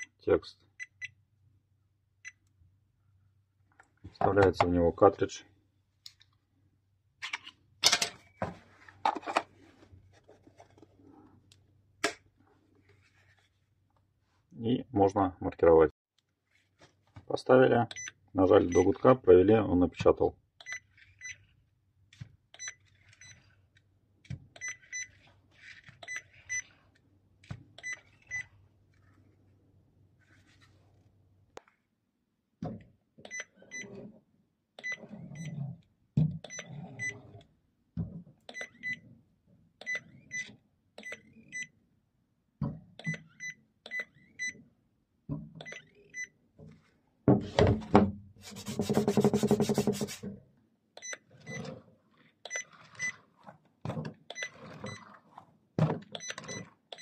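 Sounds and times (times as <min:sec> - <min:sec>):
printer knocking and scraping: 0:47.3 - 0:50.2.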